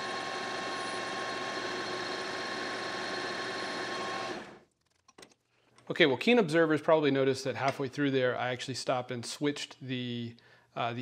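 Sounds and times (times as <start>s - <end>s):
metal lathe whining: 0.0s - 4.6s.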